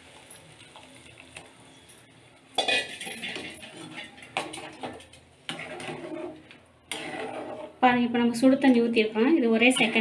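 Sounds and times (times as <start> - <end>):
metal spatula scraping steel pan: 2.6 - 7.9, 9.5 - 10.0.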